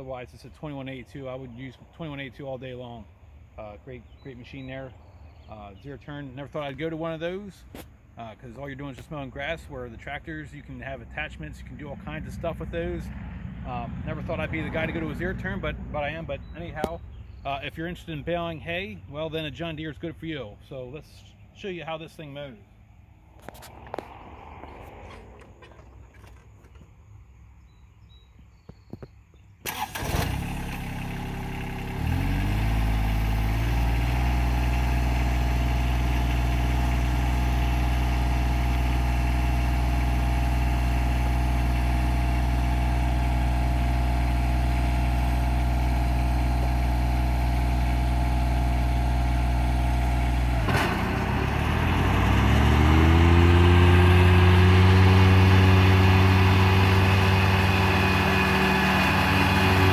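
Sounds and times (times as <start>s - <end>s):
tractor diesel engine starting and idling: 3.6s - 20.8s, 29.6s - 59.9s.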